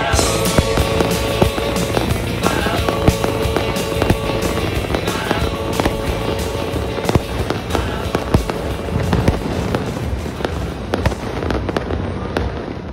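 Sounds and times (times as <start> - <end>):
music: 0.0 - 12.0
fireworks bangs and cracks: 0.0 - 12.9
fireworks rumble: 0.0 - 12.9.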